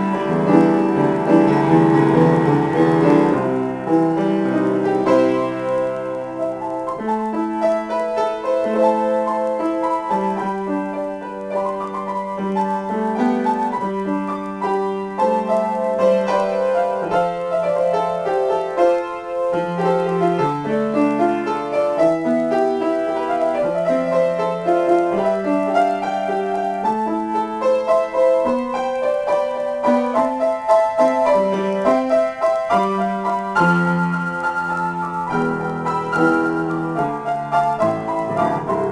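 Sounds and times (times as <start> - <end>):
solo grand piano: 0.0 - 38.9.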